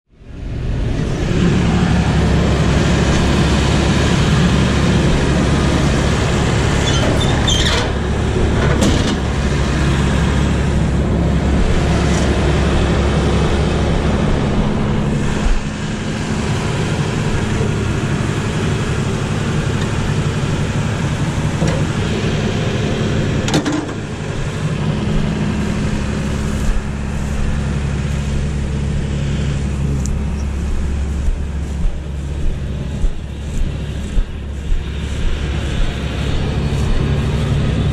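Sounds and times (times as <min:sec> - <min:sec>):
combine harvester diesel engine: 0:00.1 - 0:37.9
sharp metal knocks: 0:23.5 - 0:24.0.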